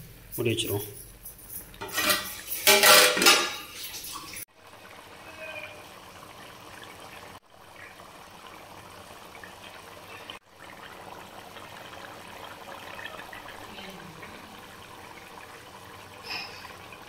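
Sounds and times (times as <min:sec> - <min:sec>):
curry bubbling in a pot: 0:04.4 - 0:17.0.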